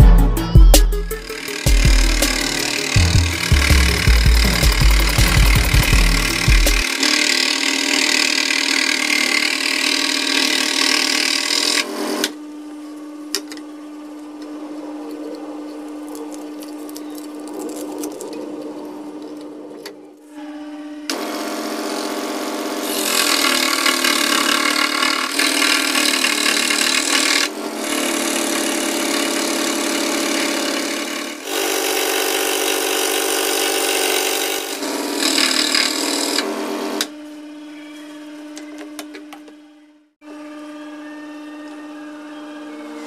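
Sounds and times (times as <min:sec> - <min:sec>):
saw blade cutting wood: 0:00.8 - 0:12.4, 0:21.1 - 0:37.1
scroll saw humming: 0:00.9 - 0:43.0.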